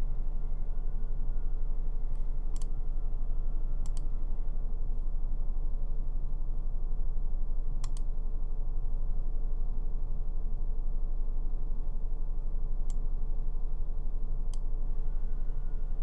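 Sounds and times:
steady low hum: 0.0s - 16.0s
computer mouse clicks: 2.2s - 2.7s, 3.8s - 4.1s, 7.8s - 8.1s, 14.5s - 14.7s.

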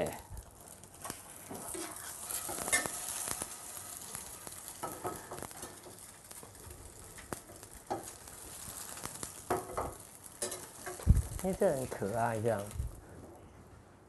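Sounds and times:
egg sizzling in oil: 0.0s - 13.1s
metal ladle scraping and tapping pan: 1.0s - 3.5s, 9.5s - 11.0s.

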